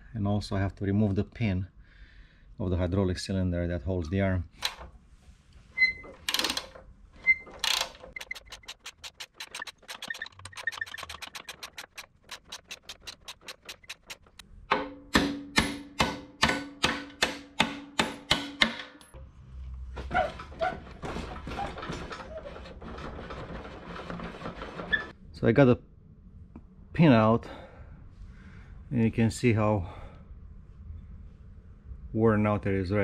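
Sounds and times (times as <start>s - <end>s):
metal scraping and handling: 5.6s - 14.4s, 20.0s - 25.2s
ratchet wrench clicking: 6.3s - 6.7s, 7.6s - 14.4s.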